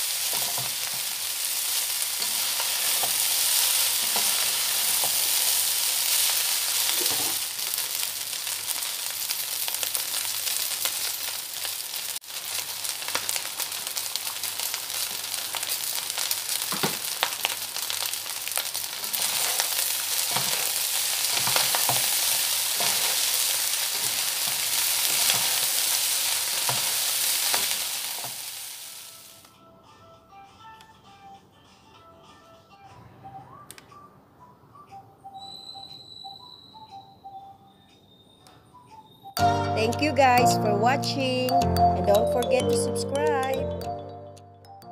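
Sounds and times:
rice sizzling in pan: 0.0 - 29.5
spatula scraping pan: 19.1 - 24.2.

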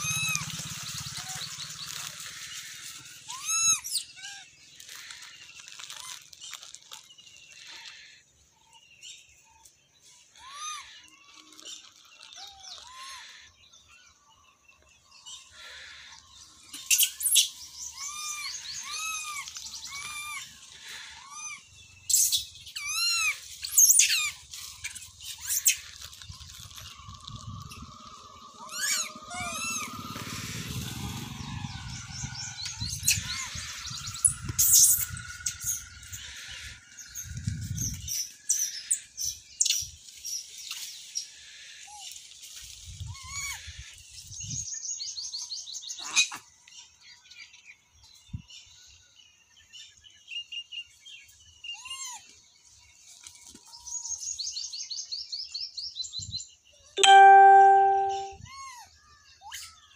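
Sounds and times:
high arching animal calls: 0.0 - 6.2, 10.2 - 11.6, 15.3 - 39.4
sharp screechy squeals: 27.6 - 36.8.

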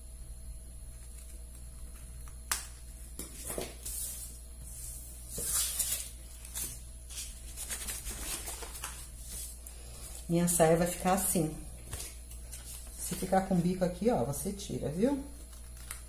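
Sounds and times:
stiff paper rustling: 5.2 - 10.2.

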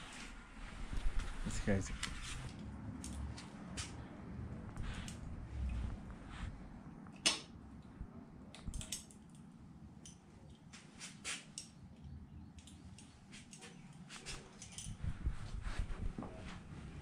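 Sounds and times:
bicycle clicks and metallic rattles: 8.5 - 15.0.

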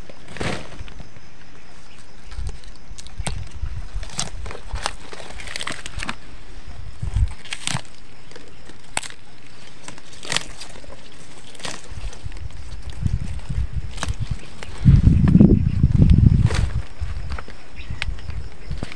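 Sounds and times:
crackles and sharp snaps: 1.9 - 6.2, 7.0 - 14.8.

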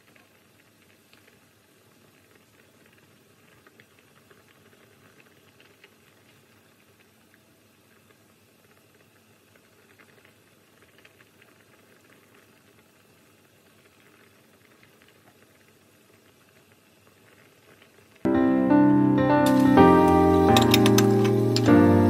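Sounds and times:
soup bubbling in a pot: 0.0 - 18.3
loud music: 18.3 - 22.0.

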